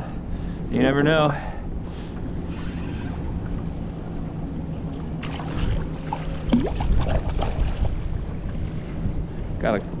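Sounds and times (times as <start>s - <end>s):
wind rumbling on microphone: 1.8s - 10.0s
water sloshing against kayak hull: 4.8s - 8.9s
sharp splashes and knocks: 5.0s - 8.0s.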